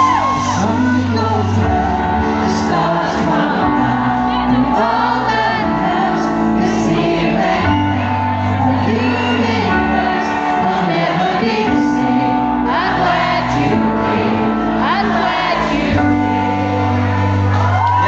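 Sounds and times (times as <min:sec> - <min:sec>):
man singing into microphone: 0:00.0 - 0:13.9
bass line: 0:00.0 - 0:18.0
keyboard chords: 0:00.0 - 0:18.0.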